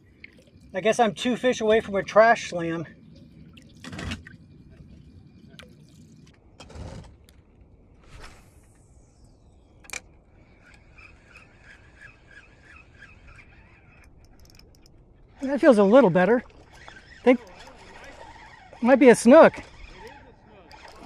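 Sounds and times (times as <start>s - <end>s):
fishing line whooshing out: 8.0s - 14.2s
spinning reel whirring: 10.5s - 21.0s.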